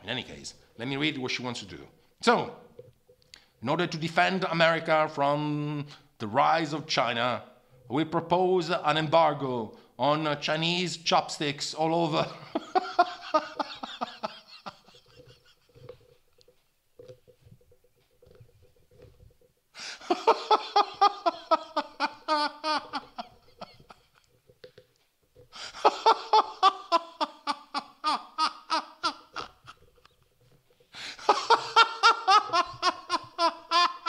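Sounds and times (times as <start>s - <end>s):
man laughing: 12.2s - 15.8s, 19.8s - 24.3s, 25.6s - 30.1s, 31.0s - 34.0s.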